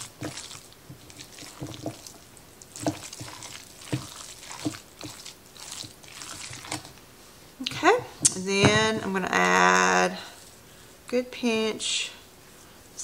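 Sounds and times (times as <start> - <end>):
wooden spoon knocking bowl: 0.0 - 2.2, 2.8 - 6.9, 8.2 - 9.2
wooden spoon stirring wet mix: 0.0 - 10.6.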